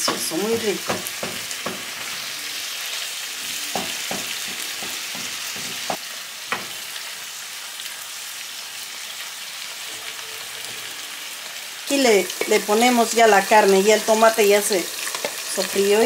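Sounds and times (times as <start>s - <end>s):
wooden spatula knocking pan: 0.0s - 2.1s, 3.7s - 6.8s
vegetables sizzling in oil: 0.0s - 16.0s.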